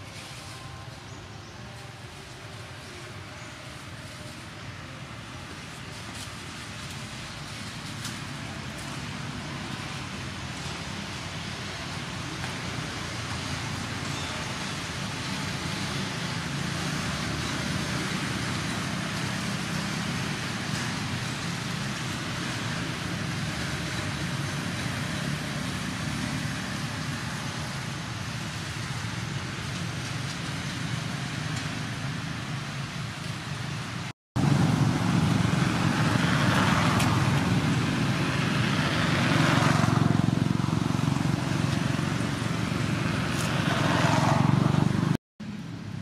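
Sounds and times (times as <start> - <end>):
motorbikes passing: 1.6 - 46.0.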